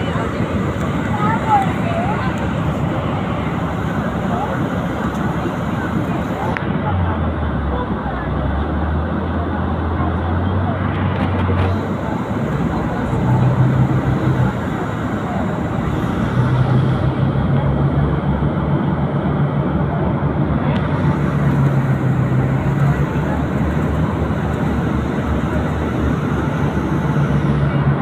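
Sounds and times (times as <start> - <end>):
bus engine hum: 0.0 - 28.0
road noise: 0.0 - 28.0.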